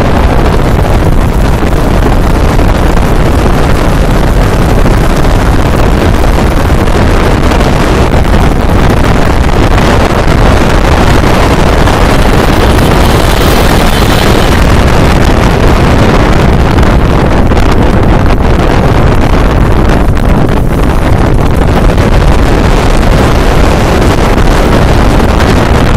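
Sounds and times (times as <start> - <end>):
motorcycle engine: 0.0 - 25.8
road noise: 0.0 - 25.9
wind buffeting microphone: 0.0 - 25.9.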